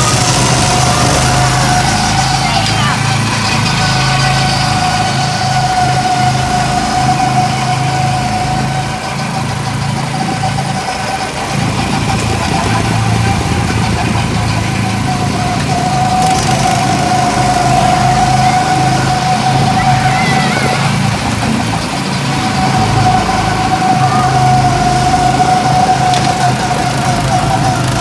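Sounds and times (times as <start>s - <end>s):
go-kart engine droning: 0.0s - 28.0s
high engine whine: 0.0s - 28.0s.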